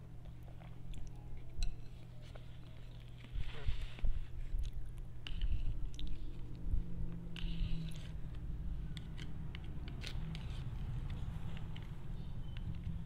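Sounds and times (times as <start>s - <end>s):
low steady hum: 0.0s - 13.0s
chewing noodles: 4.6s - 8.4s.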